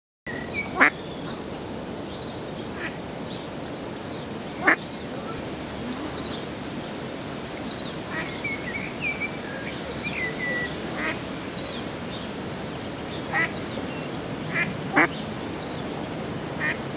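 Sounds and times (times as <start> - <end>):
ducklings peeping: 0.3 - 1.5, 4.6 - 5.4, 7.8 - 12.1, 13.1 - 15.2.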